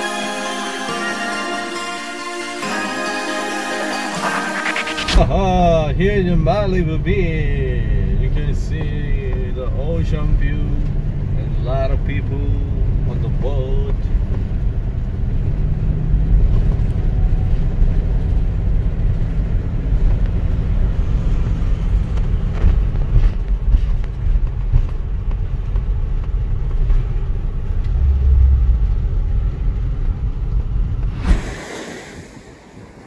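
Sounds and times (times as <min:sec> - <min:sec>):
vehicle engine and road rumble: 0:05.1 - 0:31.3.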